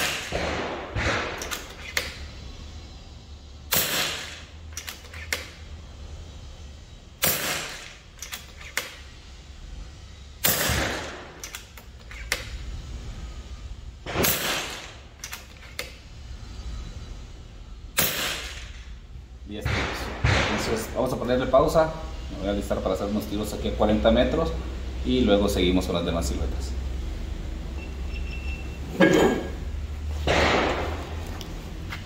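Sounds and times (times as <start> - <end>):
air rifle shots: 0.0 - 2.0, 3.7 - 5.2, 7.2 - 8.7, 10.4 - 11.7, 14.0 - 15.0, 18.0 - 18.8, 19.6 - 20.9, 30.2 - 31.0
rifle action clicks: 3.8 - 5.5, 7.7 - 9.0, 10.8 - 12.5, 15.2 - 15.9.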